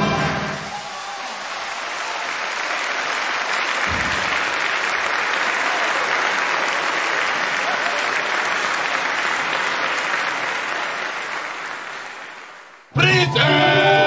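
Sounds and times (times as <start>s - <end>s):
audience applause: 0.0s - 14.0s
choir singing final chord: 13.0s - 14.0s.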